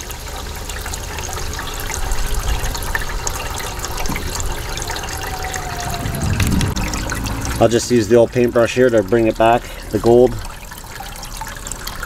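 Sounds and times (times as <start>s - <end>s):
water trickling across a table: 0.0s - 12.0s
low rumble: 4.2s - 7.9s.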